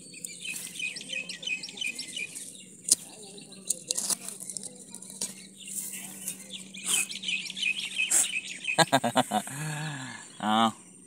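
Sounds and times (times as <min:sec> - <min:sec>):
birds chirping: 0:00.0 - 0:11.0
metal blade scraping coconut shell: 0:03.7 - 0:05.4.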